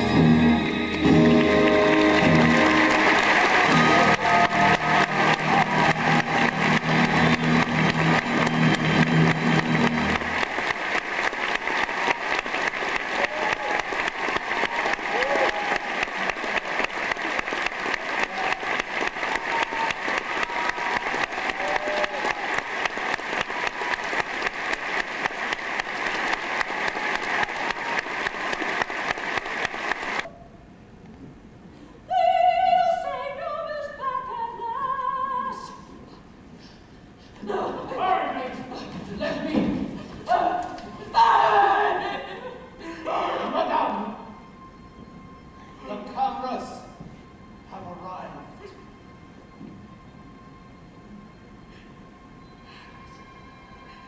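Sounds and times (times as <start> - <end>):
audience applauding: 0.8 - 30.3
shouts from audience: 2.8 - 7.4, 11.5 - 16.4, 18.0 - 22.7.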